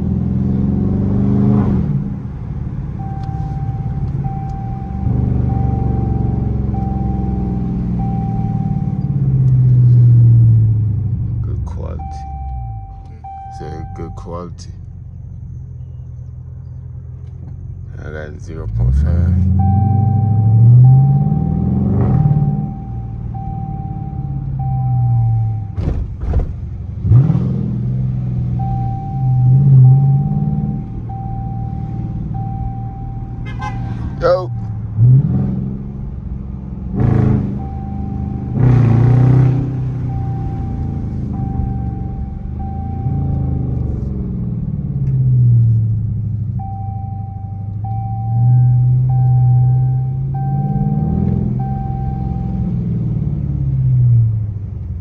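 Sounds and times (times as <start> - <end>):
car exhaust rumbling: 0.0 - 55.0.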